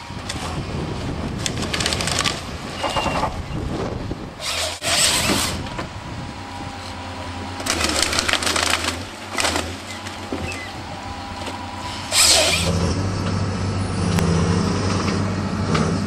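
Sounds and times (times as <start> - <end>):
chain saw cutting through log: 4.4 - 5.7, 6.7 - 10.9, 11.5 - 12.9.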